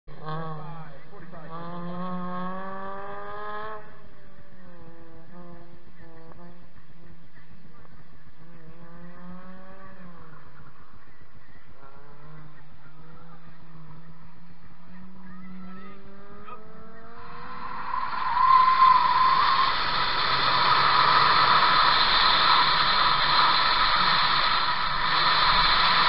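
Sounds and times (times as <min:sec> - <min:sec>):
wind and tyre noise: 0:00.1 - 0:26.0
tyres squealing: 0:16.8 - 0:26.0
electric motor whine: 0:17.2 - 0:26.0.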